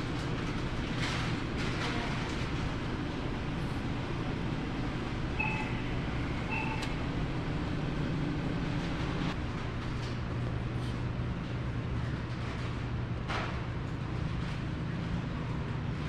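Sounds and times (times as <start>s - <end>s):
refrigerator hum: 0.0s - 16.0s
short electronic beeps: 5.4s - 7.0s.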